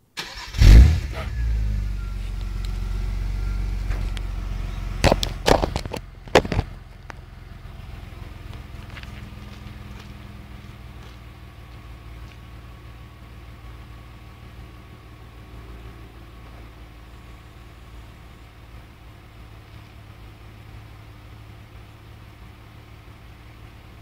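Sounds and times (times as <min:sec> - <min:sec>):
car engine starting and idling: 0:00.0 - 0:24.0.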